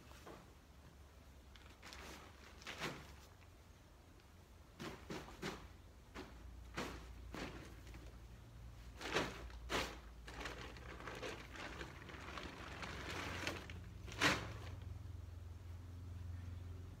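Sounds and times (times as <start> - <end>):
tent fabric rustling: 1.6 - 3.6, 4.8 - 14.9.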